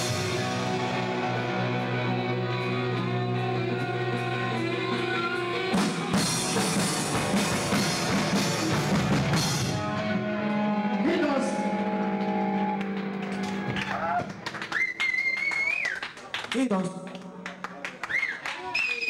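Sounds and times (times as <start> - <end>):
electric guitar and bass ringing: 0.0 - 13.9
crashing drums and cymbals: 5.8 - 9.9.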